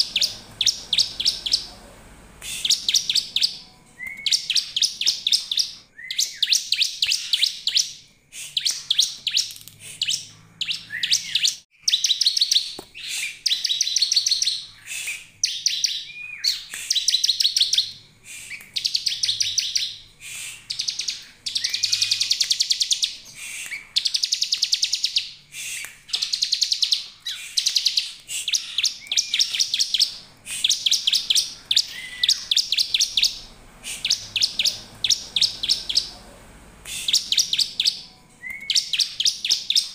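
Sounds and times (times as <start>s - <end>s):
bird buzzy trilling: 0.0s - 5.8s, 27.3s - 39.9s.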